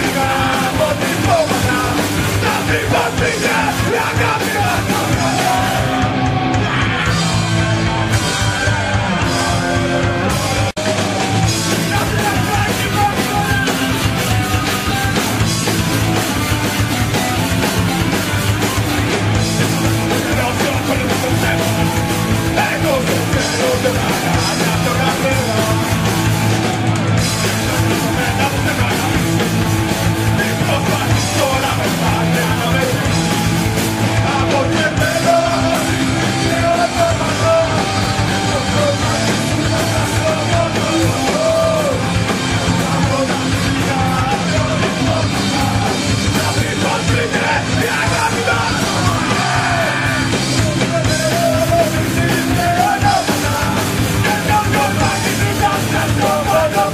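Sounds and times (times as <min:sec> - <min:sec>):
shouted vocals: 0:00.0 - 0:15.5, 0:30.3 - 0:56.9
distorted rock band playing: 0:00.0 - 0:56.9.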